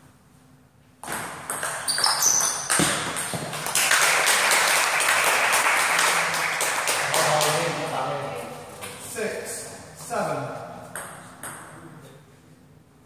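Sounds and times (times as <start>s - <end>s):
crowd applauding: 3.5s - 8.0s.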